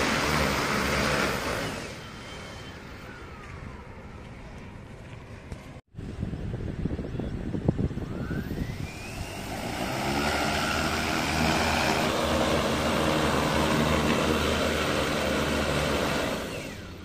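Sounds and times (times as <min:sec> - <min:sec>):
deep rotor hum: 0:00.0 - 0:17.0
drone propellers whining: 0:00.0 - 0:17.0.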